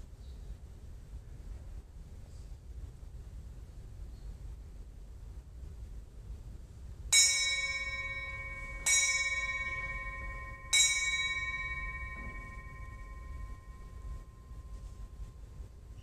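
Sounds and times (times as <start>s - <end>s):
bell ringing: 7.2s - 15.3s.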